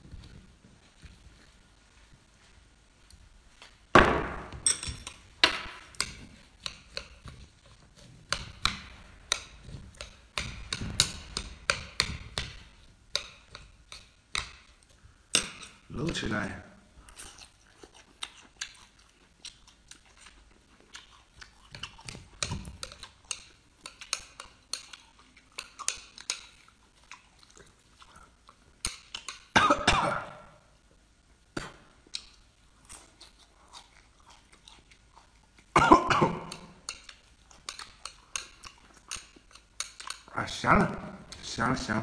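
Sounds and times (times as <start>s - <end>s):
person chewing and slurping: 5.0s - 15.9s, 16.9s - 29.6s, 31.9s - 40.4s.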